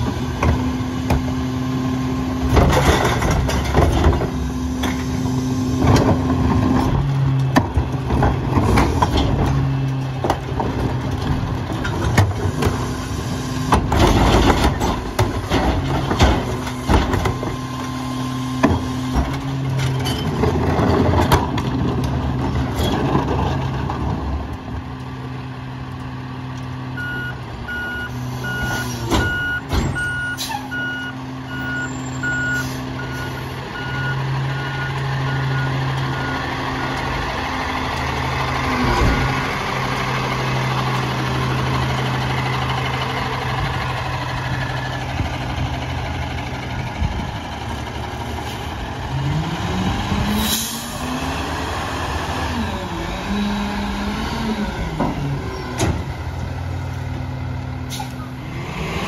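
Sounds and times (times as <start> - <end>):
garbage truck engine hum: 0.0 - 59.0
reversing beeper: 27.0 - 36.5.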